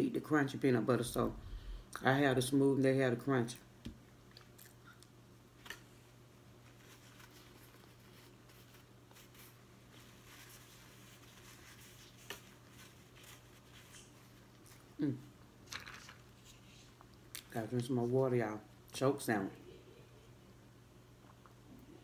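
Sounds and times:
low steady hum: 0.0 - 22.0
faint chewing: 4.2 - 5.8
person humming mm: 15.0 - 15.3.

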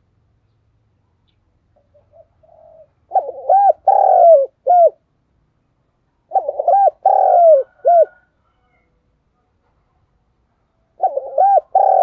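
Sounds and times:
dove cooing: 1.8 - 5.0, 6.3 - 8.9, 10.9 - 12.0.

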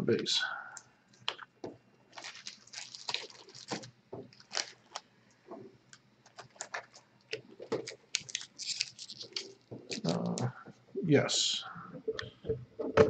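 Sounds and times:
trading cards being shuffled: 7.7 - 10.5.

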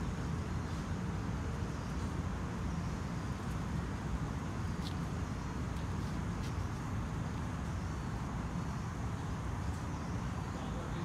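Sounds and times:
distant road traffic rumble: 0.0 - 11.0.

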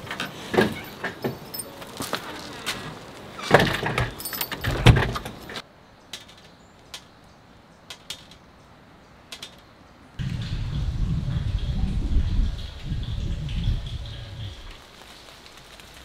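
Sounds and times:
door opening: 0.0 - 5.6
rattling and clinking handling noises: 0.0 - 5.6
low rumbling noise: 10.2 - 14.8
drizzle drops ticking on wet ground: 12.6 - 16.0.

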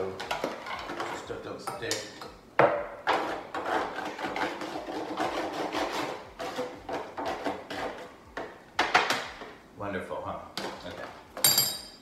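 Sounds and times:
spoon scraping foil pan: 3.1 - 8.2.

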